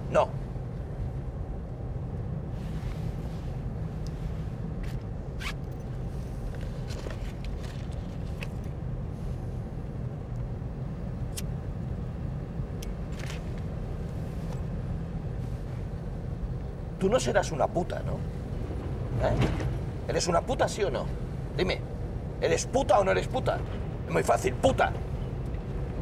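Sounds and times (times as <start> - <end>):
car driving rumble from cabin: 2.0 - 26.0
small clicks and rustles: 6.5 - 8.8, 12.8 - 14.7.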